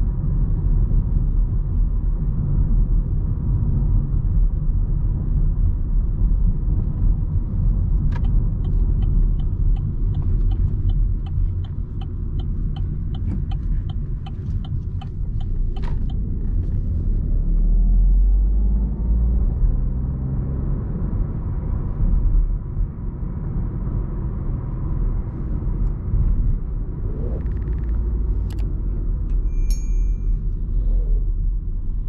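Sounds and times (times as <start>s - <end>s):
car engine and road rumble: 0.0s - 32.0s
faint rising tone: 26.8s - 28.7s.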